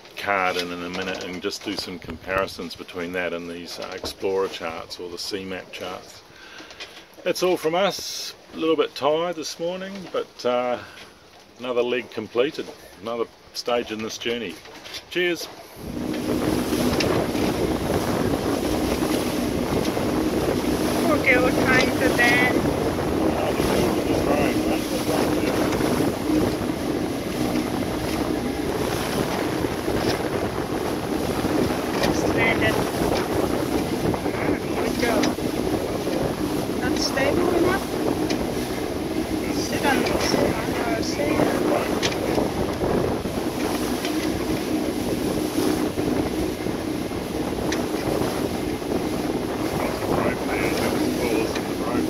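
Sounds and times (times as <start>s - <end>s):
water rushing along hulls: 0.0s - 52.0s
low hum: 15.6s - 42.3s
wind buffeting microphone: 15.6s - 52.0s.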